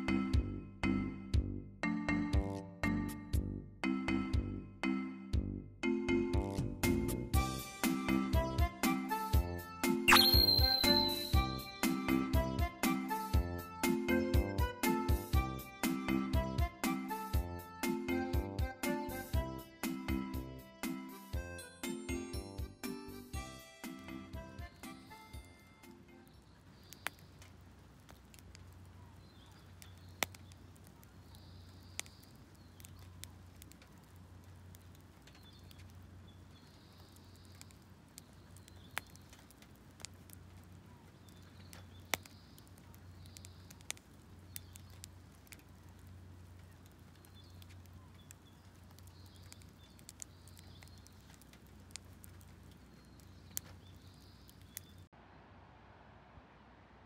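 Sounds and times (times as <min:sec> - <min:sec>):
fire crackling and popping: 0:06.4 - 0:21.3, 0:23.4 - 0:55.1
faint hiss: 0:23.4 - 0:57.0.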